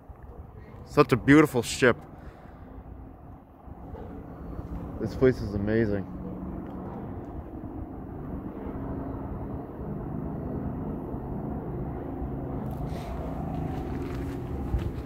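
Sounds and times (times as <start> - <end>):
low mechanical rumble: 1.7 - 15.0
footsteps: 12.7 - 15.0.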